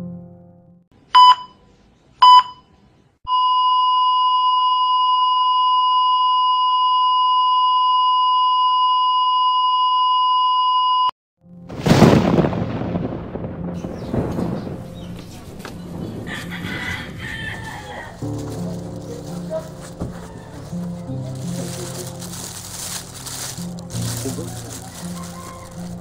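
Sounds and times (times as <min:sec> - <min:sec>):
heart monitor beeps: 0:01.2 - 0:01.6, 0:02.2 - 0:02.7, 0:03.3 - 0:11.1.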